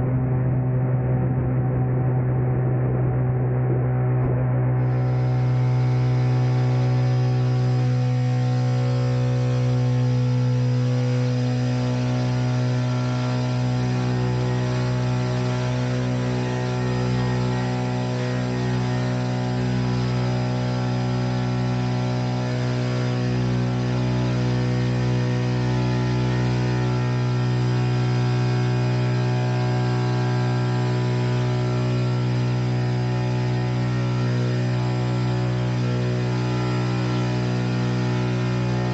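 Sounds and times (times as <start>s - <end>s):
electric propeller droning: 0.0s - 38.9s.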